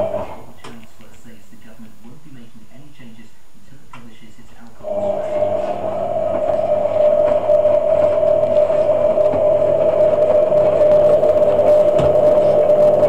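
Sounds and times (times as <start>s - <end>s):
washing machine whining: 0.0s - 0.8s, 4.8s - 13.0s.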